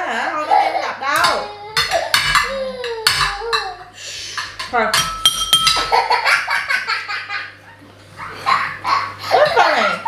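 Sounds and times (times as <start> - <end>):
cutlery clinking on plates: 1.2 - 6.0
child laughing: 5.8 - 10.0.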